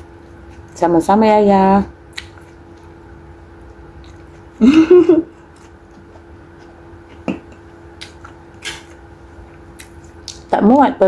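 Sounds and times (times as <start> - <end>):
faint steady hum: 0.0 - 11.0
person chewing: 2.0 - 10.5.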